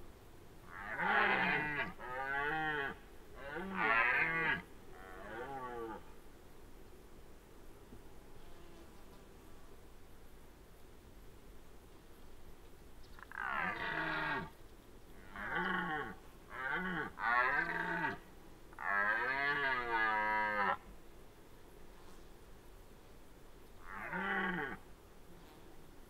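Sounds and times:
red deer roaring: 13.3 - 14.5.

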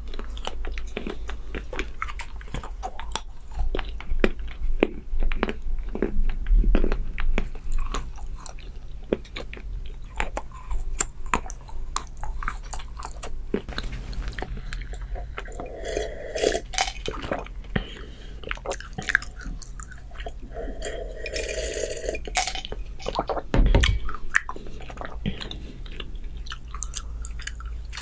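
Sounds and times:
chewing and smacking: 0.0 - 15.9, 16.5 - 28.0
sipping and swallowing: 18.4 - 23.4
loud low thump: 23.5 - 24.2.

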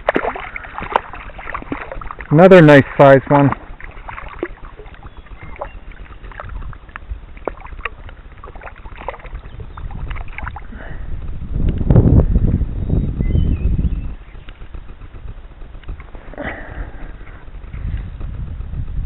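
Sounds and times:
water splashes and drips: 0.0 - 10.9
low rumble: 0.0 - 19.0.

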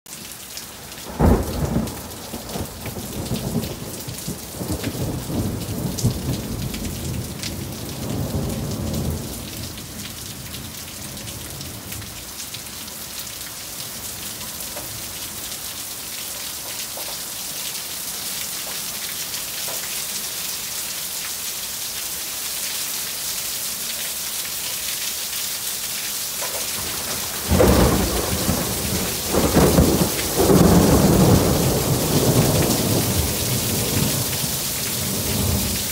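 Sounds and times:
heavy rain falling: 0.1 - 35.9
thunder rumbling: 26.8 - 35.9.

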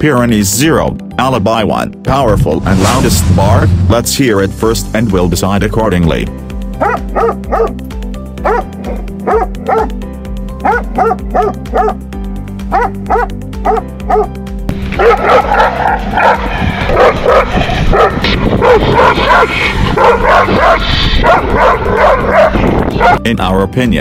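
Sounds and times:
background music: 0.0 - 24.0
dog barking: 6.8 - 7.8, 8.4 - 9.9, 10.6 - 12.0, 12.7 - 14.3, 15.0 - 23.2
dog barking rapidly and loudly: 6.8 - 7.8, 8.4 - 9.9, 10.6 - 12.0, 12.7 - 14.3, 15.0 - 23.2.

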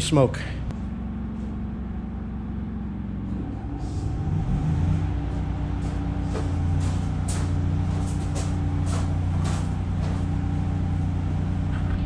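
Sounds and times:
generator engine running: 0.0 - 12.0.

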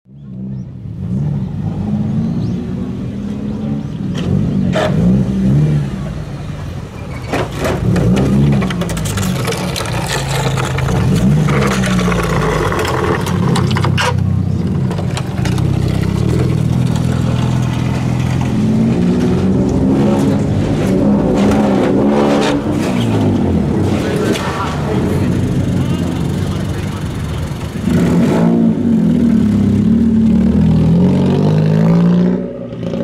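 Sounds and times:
car engine revving: 7.5 - 33.0.

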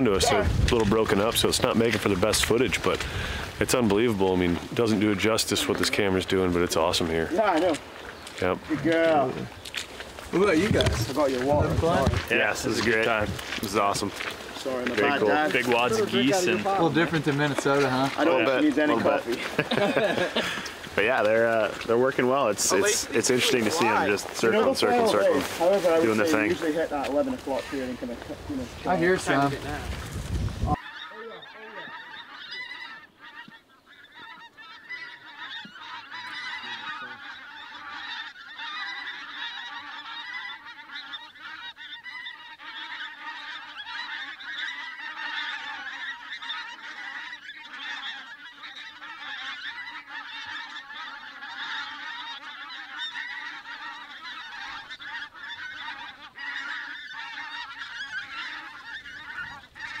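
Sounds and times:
flock of geese honking: 0.0 - 60.0.

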